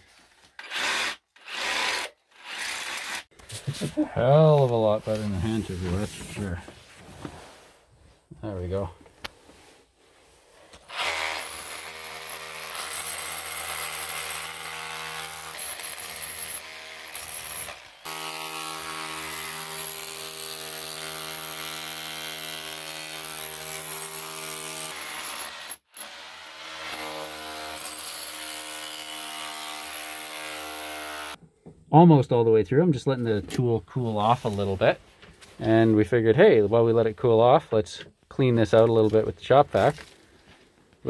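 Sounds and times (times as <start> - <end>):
hammer drill boring concrete: 0.6 - 3.3, 10.9 - 31.4.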